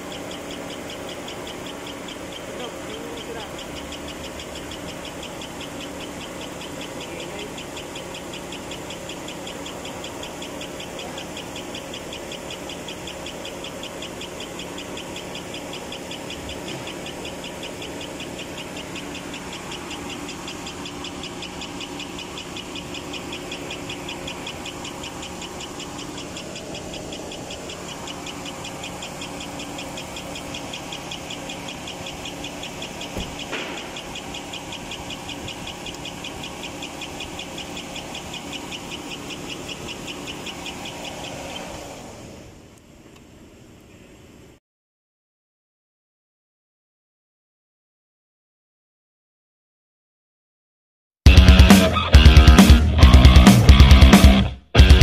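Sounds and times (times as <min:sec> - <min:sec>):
engine ticking: 0:00.0 - 0:43.2, 0:51.3 - 0:55.0
car engine idling: 0:00.0 - 0:44.5, 0:51.3 - 0:55.0.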